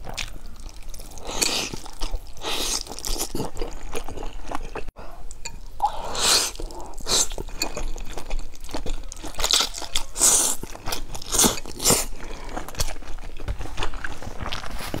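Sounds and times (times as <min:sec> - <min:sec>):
person chewing crunchy food: 0:00.0 - 0:15.0.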